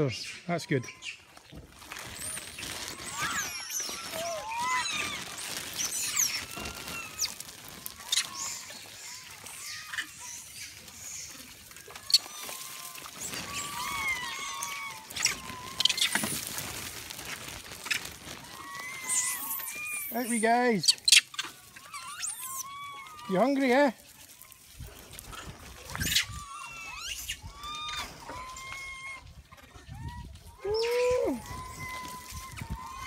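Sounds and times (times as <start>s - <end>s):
monkeys squeaking and chirping: 0.1s - 1.3s, 2.0s - 23.6s, 25.2s - 33.0s.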